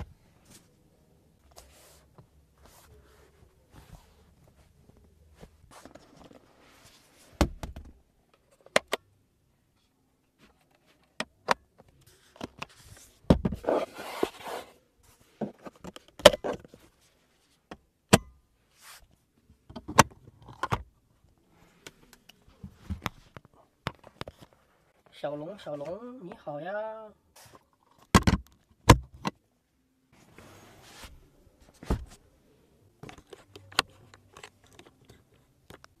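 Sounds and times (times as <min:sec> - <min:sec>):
rustling scrape: 0:05.4 - 0:07.3, 0:12.7 - 0:15.4, 0:30.2 - 0:31.2.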